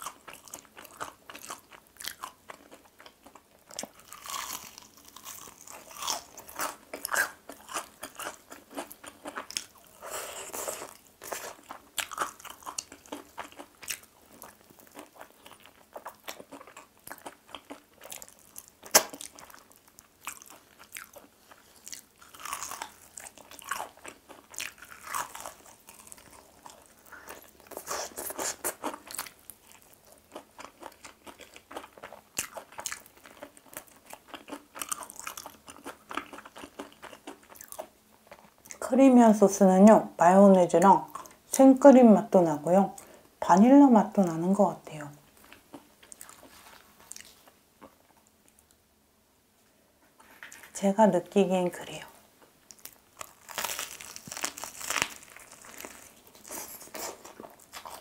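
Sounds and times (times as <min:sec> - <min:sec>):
chewing: 0:00.0 - 0:38.8, 0:45.4 - 0:48.8
crunching fried chicken: 0:00.0 - 0:38.8, 0:52.7 - 0:58.0.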